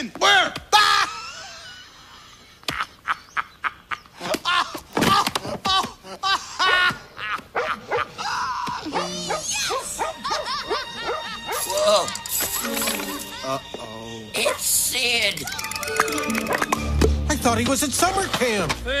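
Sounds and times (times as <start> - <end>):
characters' cries: 0.7 - 2.0, 4.4 - 16.3
cartoon music: 10.6 - 17.4.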